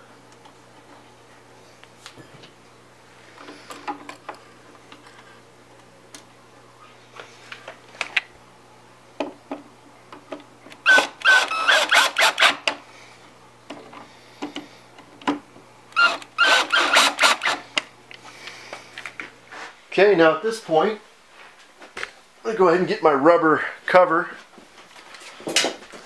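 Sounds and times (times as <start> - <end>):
cordless drill driving screws: 10.8 - 12.7, 16.0 - 17.6.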